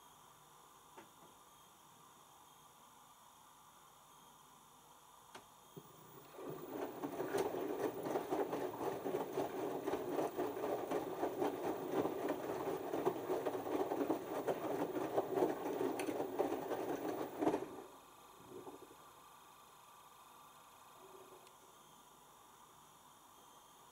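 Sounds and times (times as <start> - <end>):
washing machine drum tumbling laundry: 6.1 - 18.0.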